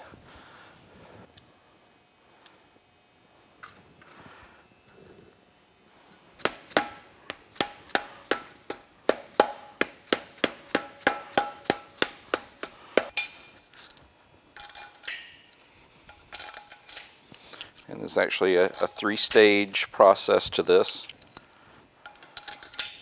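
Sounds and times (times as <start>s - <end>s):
small metal parts rattling: 13.1s - 23.0s.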